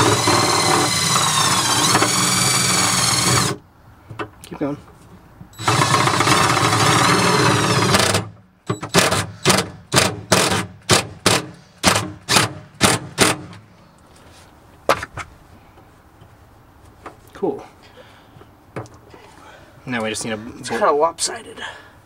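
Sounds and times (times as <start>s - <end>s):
cordless drill driving screw: 0.0s - 3.6s, 5.6s - 9.6s.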